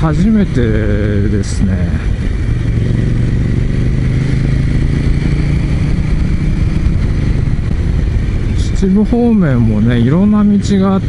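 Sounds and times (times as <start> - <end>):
low rushing noise: 0.0 - 11.0
motorcycle engine running: 0.0 - 11.0.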